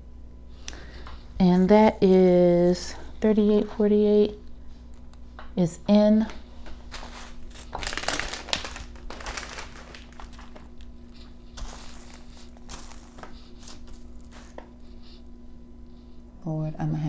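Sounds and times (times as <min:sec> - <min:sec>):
plastic bags crinkling and rustling: 0:06.7 - 0:14.7.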